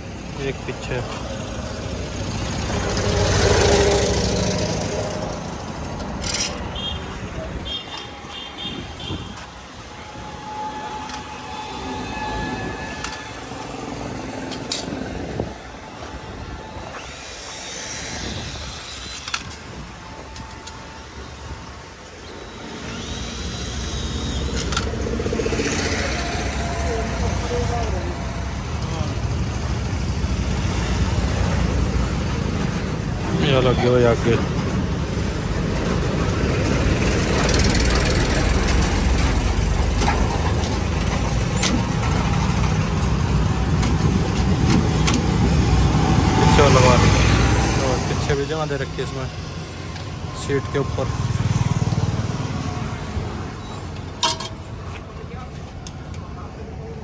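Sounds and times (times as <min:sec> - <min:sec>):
road and traffic noise: 0:00.0 - 0:57.0
high steady squeals: 0:02.8 - 0:29.1
tractor diesel engine running: 0:35.6 - 0:56.4.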